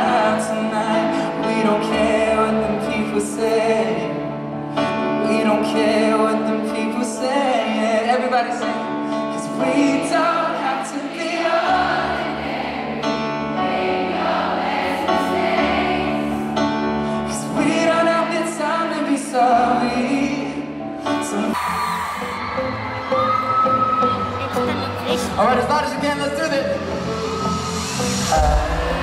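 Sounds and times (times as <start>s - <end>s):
crowd singing along: 0.0s - 8.2s, 9.5s - 22.3s, 27.2s - 29.0s
man singing live pop music: 0.0s - 11.6s, 16.6s - 22.2s, 24.2s - 29.0s.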